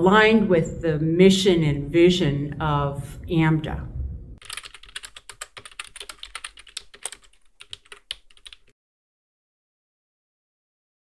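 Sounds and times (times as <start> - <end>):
rapid keyboard typing clicks: 4.4 - 8.7.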